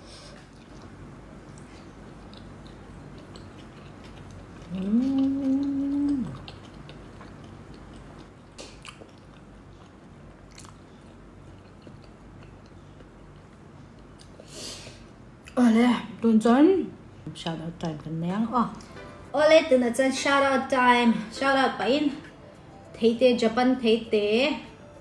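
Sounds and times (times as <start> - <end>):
faint chewing clicks: 0.5 - 14.4
woman humming while chewing: 4.6 - 6.7.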